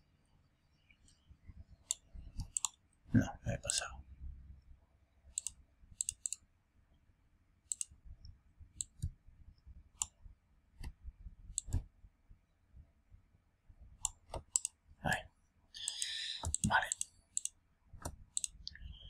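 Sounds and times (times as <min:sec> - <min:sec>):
computer mouse clicking: 0:01.8 - 0:02.8, 0:05.3 - 0:06.4, 0:07.7 - 0:08.0, 0:08.8 - 0:09.2, 0:10.0 - 0:10.2, 0:10.8 - 0:11.8, 0:14.0 - 0:14.8, 0:15.8 - 0:18.8.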